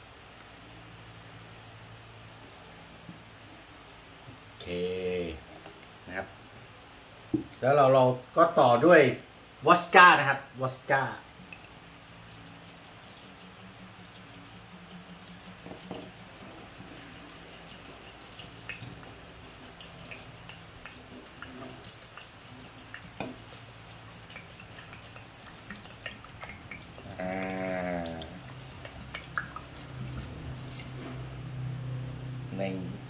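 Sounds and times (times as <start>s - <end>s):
liquid trickling into glass jar: 12.1s - 31.2s
short bleat-like call: 27.1s - 28.2s.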